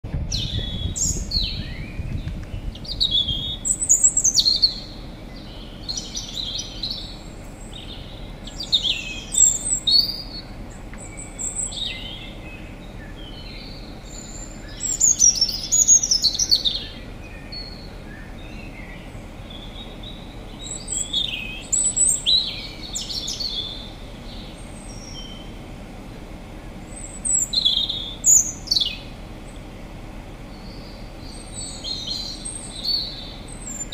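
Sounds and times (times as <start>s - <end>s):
birds chirping: 0.0s - 33.9s
faint outdoor background hiss: 0.0s - 33.9s.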